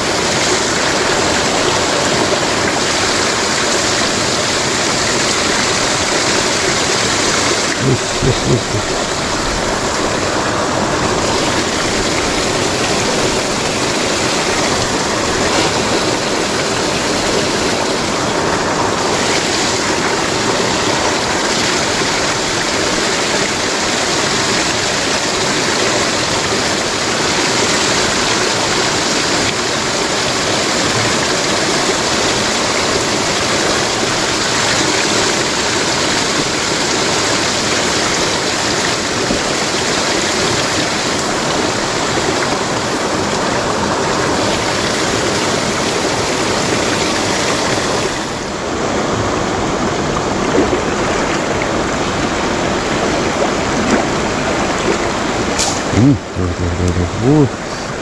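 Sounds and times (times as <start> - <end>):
river water rushing over rocks: 0.0 - 58.0.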